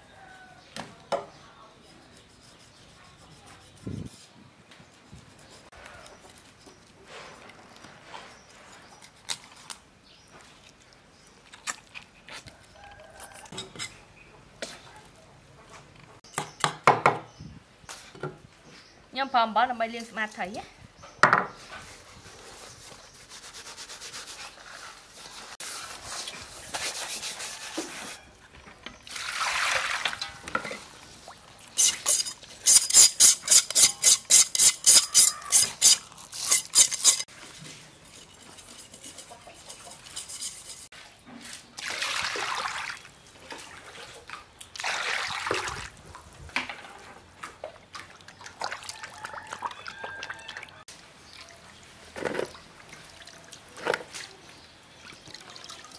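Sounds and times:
salt rubbing on fish: 21.9s - 28.2s
water splashing: 29.1s - 31.7s, 41.8s - 46.2s, 47.5s - 51.7s
knife scraping fish scales: 31.8s - 37.3s, 38.1s - 40.9s.

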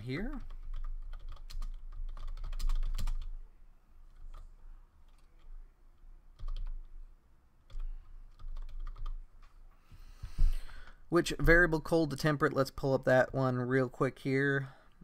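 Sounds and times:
typing on computer keyboard: 0.3s - 3.4s, 6.3s - 6.9s, 7.7s - 9.5s.

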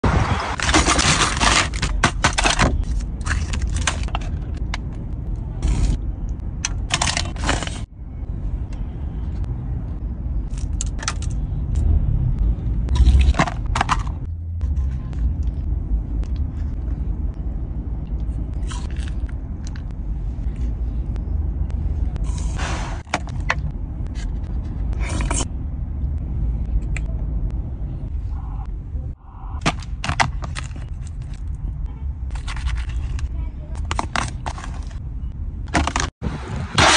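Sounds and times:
plastic containers crinkling: 0.6s - 4.6s, 32.3s - 35.0s
low rumble inside a car: 7.9s - 22.4s, 23.4s - 29.6s
plastic spoon scraping: 32.3s - 35.0s.

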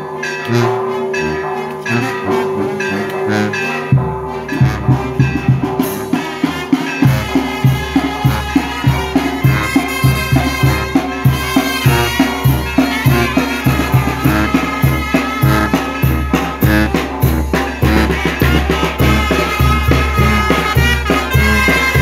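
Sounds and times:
marching brass band playing: 0.0s - 22.0s
bass drum beat: 3.9s - 6.2s, 7.1s - 22.0s.

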